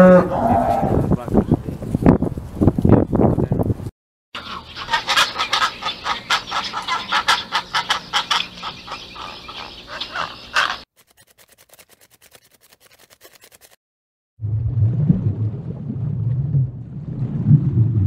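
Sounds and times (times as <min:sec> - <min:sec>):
birds giving harsh calls: 0:04.4 - 0:10.9.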